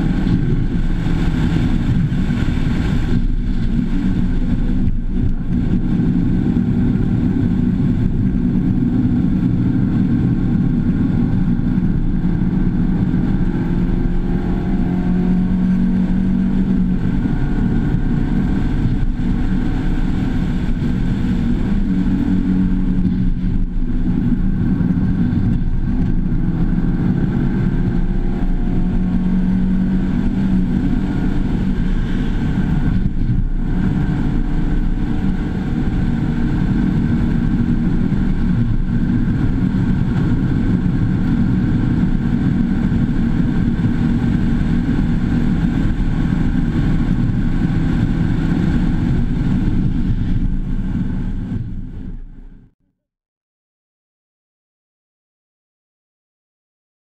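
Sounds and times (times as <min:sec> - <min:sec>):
car engine accelerating: 0:00.0 - 0:52.7
road noise: 0:00.0 - 0:52.7.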